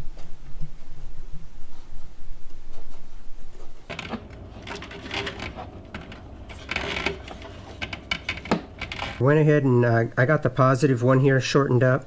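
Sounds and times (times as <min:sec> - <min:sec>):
quick light clicks and rattles of wiring: 0:03.9 - 0:09.2.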